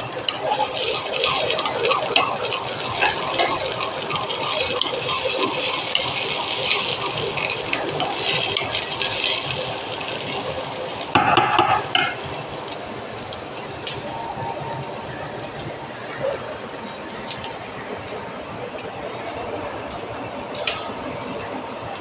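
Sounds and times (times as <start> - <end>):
spatula scraping frying pan: 0.3 - 12.2.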